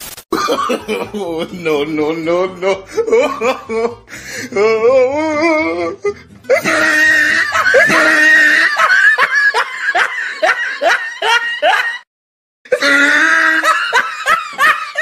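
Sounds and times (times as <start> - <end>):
person laughing: 0.3 - 5.9, 6.5 - 12.0, 12.7 - 15.0
music: 1.0 - 8.2.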